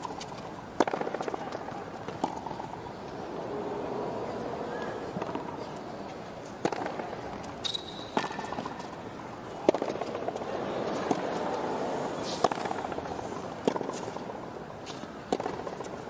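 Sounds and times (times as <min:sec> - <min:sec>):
racket hitting tennis ball: 0:00.0 - 0:09.0, 0:09.6 - 0:16.0
court shoes squeaking: 0:00.0 - 0:16.0
crowd murmur: 0:01.2 - 0:07.6, 0:09.4 - 0:14.8.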